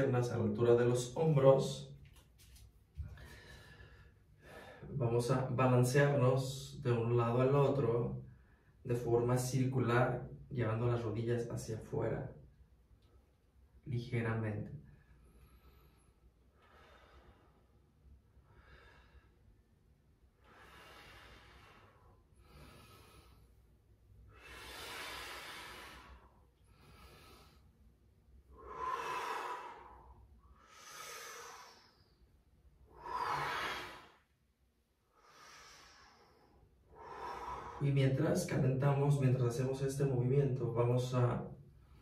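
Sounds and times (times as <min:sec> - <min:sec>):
person breathing deeply: 0:03.0 - 0:05.0, 0:15.0 - 0:34.4, 0:35.0 - 0:38.1.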